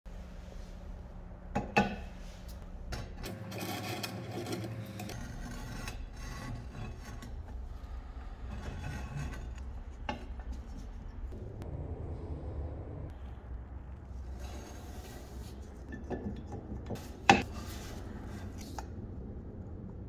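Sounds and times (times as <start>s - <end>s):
iron scraping on wood: 3.3s - 9.6s.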